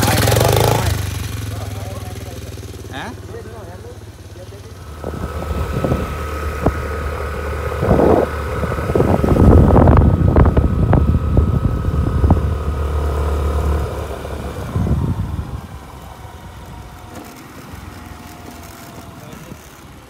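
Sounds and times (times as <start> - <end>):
motorcycle engine running: 0.0 - 20.0
wind buffeting microphone: 4.8 - 17.8.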